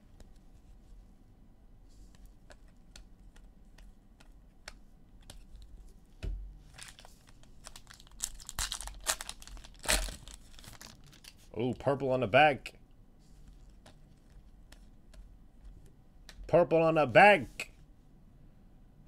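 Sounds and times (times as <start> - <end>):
wrapper crinkling and tearing: 6.7 - 11.5.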